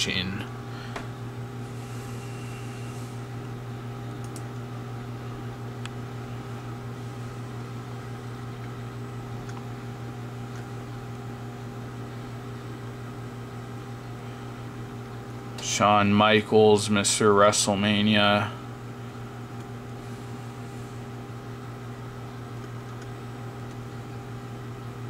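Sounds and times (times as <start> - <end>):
low electrical hum: 0.0 - 25.0
computer mouse clicks: 4.2 - 4.6, 22.6 - 23.1.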